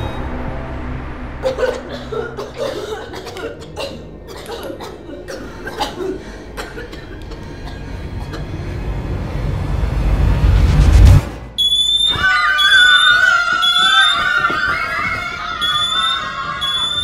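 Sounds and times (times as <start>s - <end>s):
deep low rumble: 7.9s - 11.6s.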